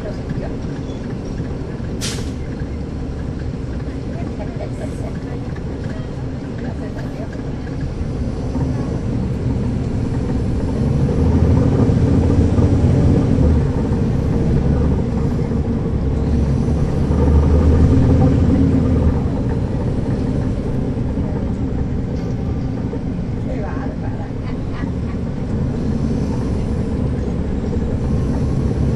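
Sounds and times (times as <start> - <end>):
bus diesel engine running: 0.0 - 28.9.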